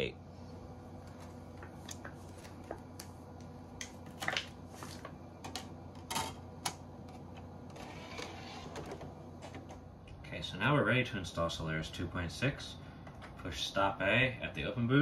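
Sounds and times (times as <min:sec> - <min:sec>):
disc handling clicks and rustles: 0:03.8 - 0:09.8.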